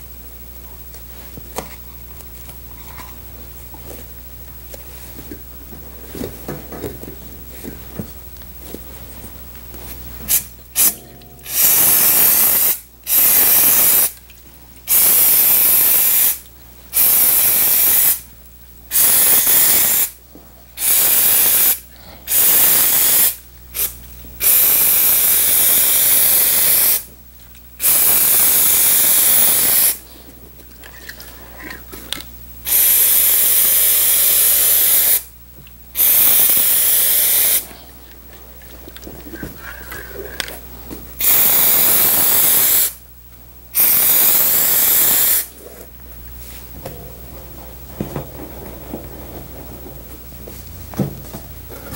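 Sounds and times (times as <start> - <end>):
aerosol spray can hissing: 10.3 - 14.2, 14.9 - 18.2, 18.9 - 20.2, 20.8 - 27.1, 27.8 - 30.0, 32.6 - 35.3, 36.0 - 37.6, 41.2 - 43.0, 43.8 - 45.5.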